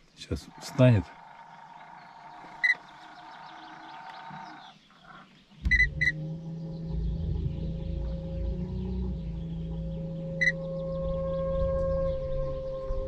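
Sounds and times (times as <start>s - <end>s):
trolling motor droning: 0.4s - 4.8s, 5.6s - 12.5s
electronic beeps: 2.1s - 2.8s, 5.7s - 6.2s, 10.4s - 10.6s.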